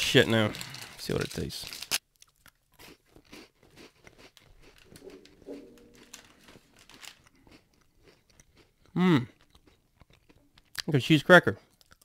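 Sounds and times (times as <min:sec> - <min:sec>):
cracker being chewed: 0:00.6 - 0:10.9, 0:11.7 - 0:12.0.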